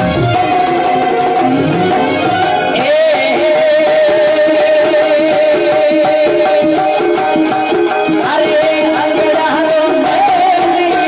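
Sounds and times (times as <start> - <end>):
wavering melody line: 0.0 - 4.5
dholak drum: 0.0 - 11.0
jingling percussion: 0.0 - 11.0.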